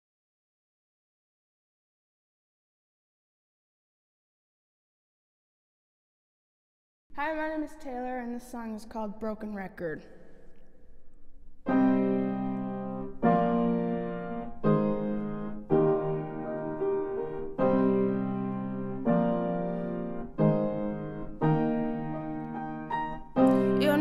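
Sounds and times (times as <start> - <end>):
piano playing slow chords: 11.6 - 24.0.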